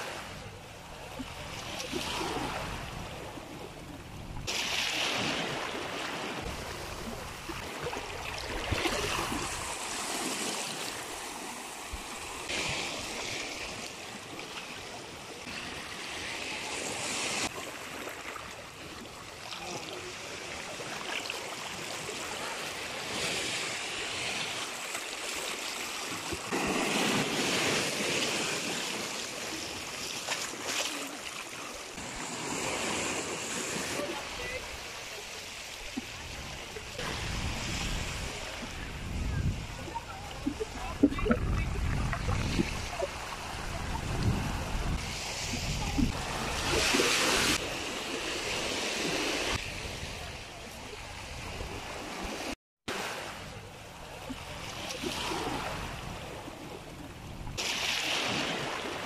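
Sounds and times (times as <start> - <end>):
small waves washing over rocks: 4.4 - 38.8, 57.5 - 59.0.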